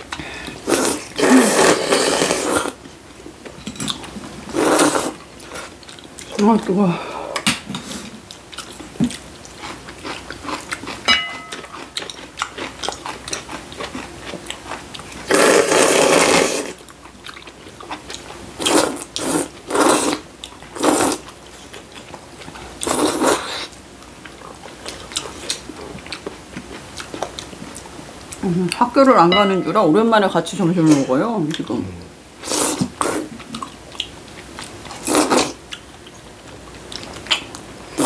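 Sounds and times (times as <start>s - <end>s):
noodles being slurped: 4.5s - 5.8s, 15.2s - 16.8s
soft chewing: 5.2s - 6.4s, 7.8s - 15.3s, 16.8s - 28.8s, 32.4s - 37.7s.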